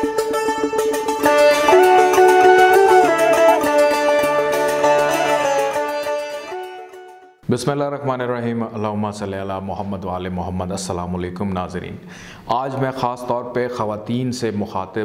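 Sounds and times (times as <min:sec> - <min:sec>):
instrumental melody: 0:00.0 - 0:07.4.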